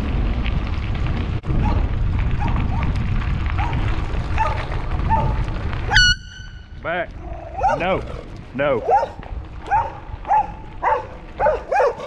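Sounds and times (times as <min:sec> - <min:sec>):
bicycle tyres rolling on gravel: 0:00.0 - 0:12.0
wind buffeting microphone: 0:00.0 - 0:12.0
loud air horn blast: 0:05.9 - 0:06.6
faint dog barks: 0:07.4 - 0:08.0, 0:08.8 - 0:12.0.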